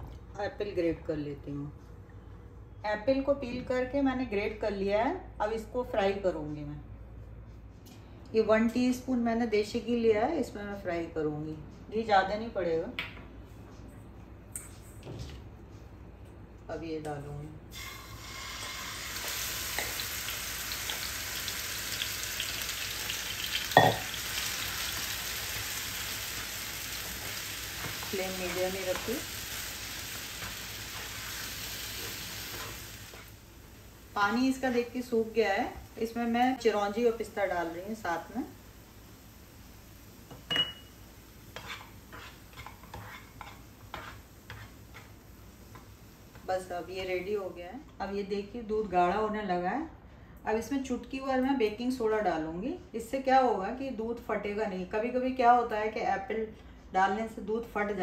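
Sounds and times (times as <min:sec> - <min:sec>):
apple sizzling in hot fat: 0:17.7 - 0:40.2.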